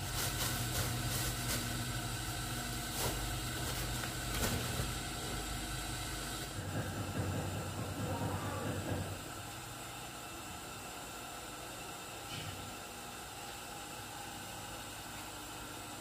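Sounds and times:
plastic bags rustling: 0.0 - 2.0, 2.8 - 5.2.

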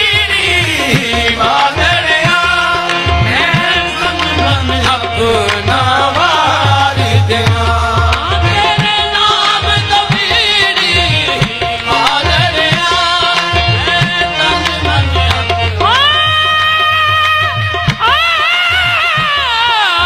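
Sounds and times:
hand drum beats: 0.0 - 20.0
harmoniums: 0.0 - 20.0
person singing: 10.5 - 20.0.

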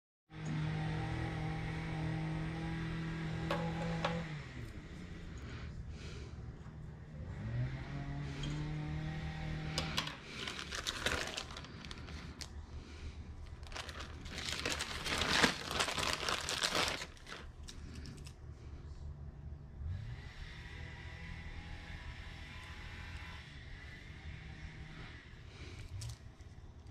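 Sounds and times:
low pitched drone: 0.4 - 16.4
plastic bag crinkling: 9.8 - 12.5, 13.4 - 18.3.

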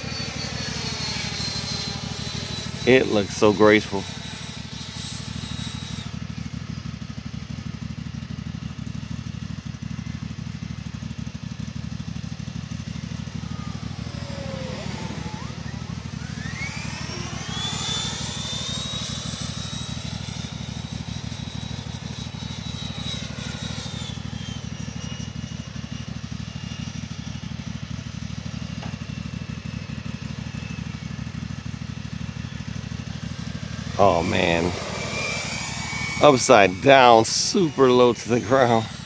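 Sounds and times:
electric ducted fan whining: 12.4 - 21.4, 33.0 - 39.0.

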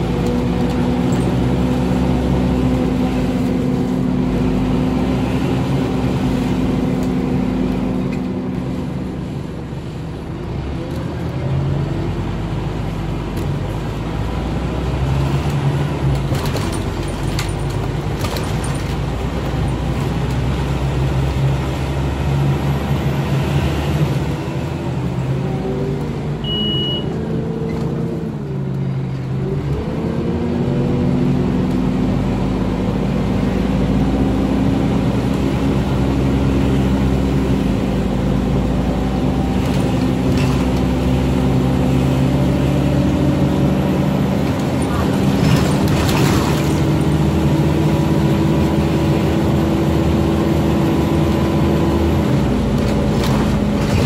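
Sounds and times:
bus diesel engine: 0.0 - 54.0
short high beep: 26.4 - 27.1.

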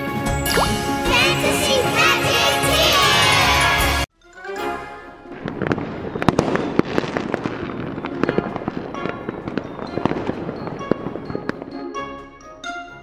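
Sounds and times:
light music: 0.0 - 5.6.

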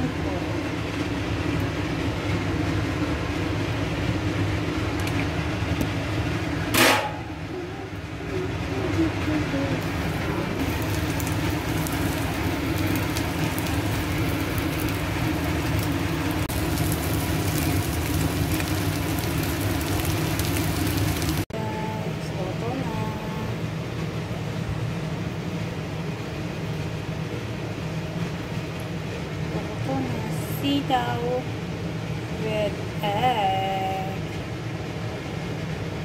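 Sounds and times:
food sizzling in hot oil: 9.8 - 21.5.

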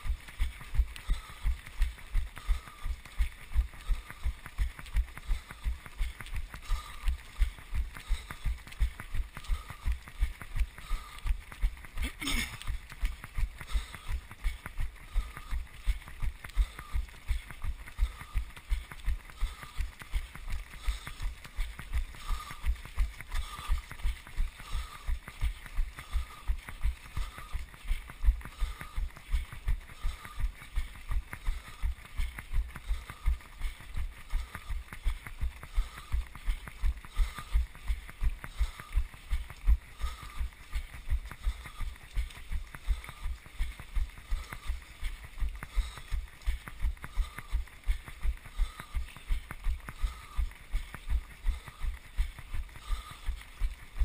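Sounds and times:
hiss of running feet and air: 0.0 - 54.0.

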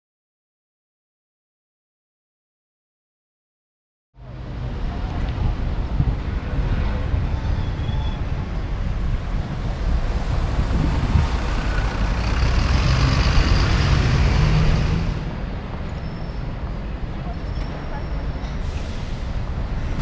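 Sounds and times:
bus engine passing by: 4.2 - 20.0
street traffic rumble: 4.2 - 20.0.

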